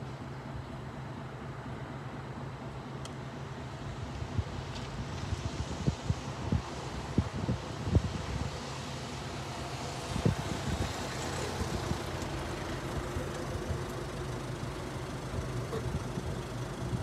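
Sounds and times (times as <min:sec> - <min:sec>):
low vehicle rumble: 0:03.6 - 0:17.0
wind buffeting microphone: 0:04.3 - 0:17.0.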